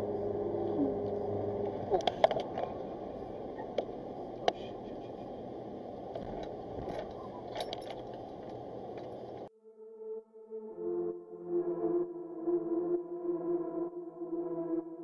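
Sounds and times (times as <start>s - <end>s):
car road and engine noise: 0.0s - 9.5s.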